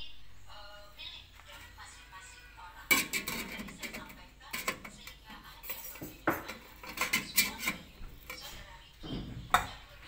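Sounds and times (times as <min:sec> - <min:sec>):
metal tray clinking in pot: 0:02.9 - 0:08.4.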